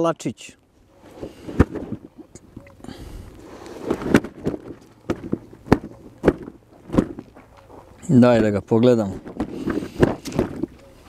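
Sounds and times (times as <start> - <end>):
handling rustling: 0.8 - 11.0
sharp knocks and thumps: 3.9 - 7.4, 9.1 - 10.8.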